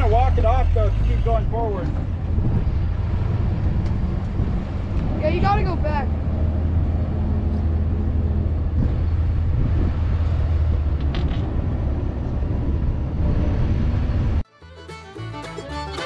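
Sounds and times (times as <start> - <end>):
tracked vehicle engine drone: 0.0 - 14.4.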